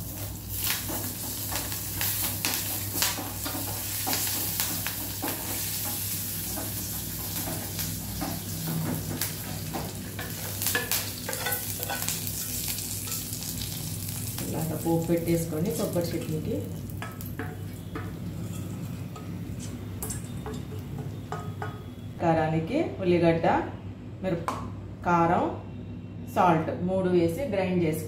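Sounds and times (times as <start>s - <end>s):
spices sizzling in hot oil: 0.0s - 22.0s.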